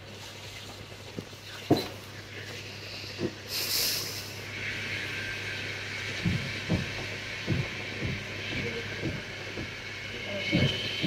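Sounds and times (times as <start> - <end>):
steady low hum and hiss: 0.0 - 11.0
short high hiss: 2.9 - 4.5.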